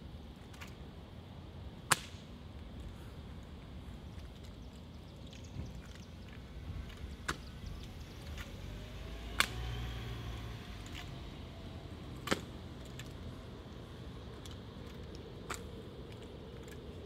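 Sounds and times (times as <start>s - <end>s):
traffic hum: 0.0s - 17.0s
vehicle passing: 6.4s - 16.6s.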